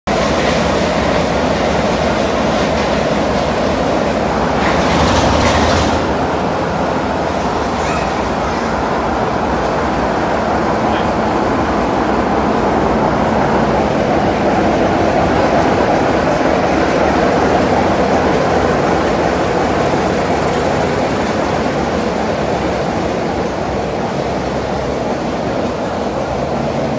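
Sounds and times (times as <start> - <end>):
diesel locomotive engine rumbling: 0.1 - 26.9.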